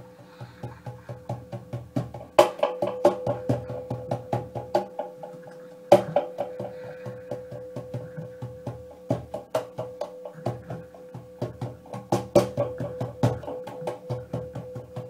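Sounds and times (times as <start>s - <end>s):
steady held tone: 0.0s - 15.0s
wood block strikes: 0.3s - 15.0s
low drum thumps: 0.5s - 5.3s, 5.9s - 15.0s.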